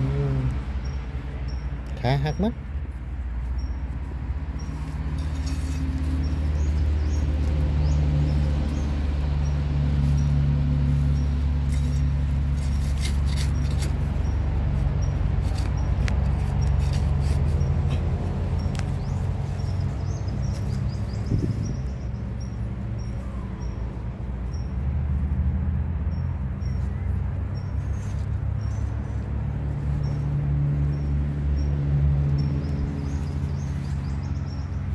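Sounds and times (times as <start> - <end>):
soil being dug by hand: 3.9 - 21.8
clicks and scrapes: 4.9 - 6.8, 11.6 - 14.3, 15.4 - 19.0.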